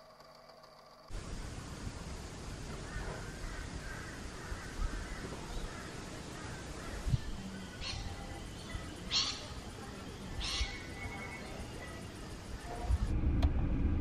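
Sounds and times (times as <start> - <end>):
faint birds calling: 1.1 - 13.1
crow cawing: 2.8 - 7.1
low rumble: 12.6 - 14.0.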